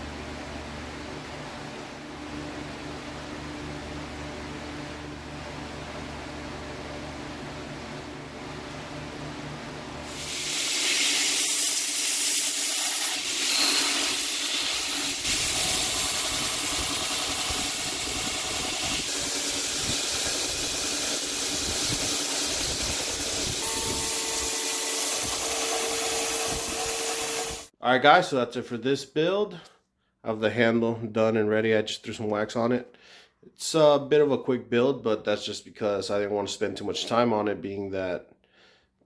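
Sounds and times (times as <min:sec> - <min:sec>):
belt grinder grinding steel: 0:10.2 - 0:27.7.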